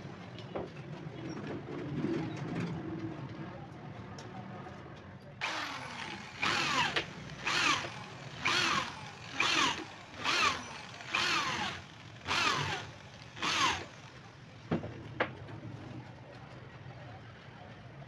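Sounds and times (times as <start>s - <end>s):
cordless drill driving screws: 5.4s - 14.1s.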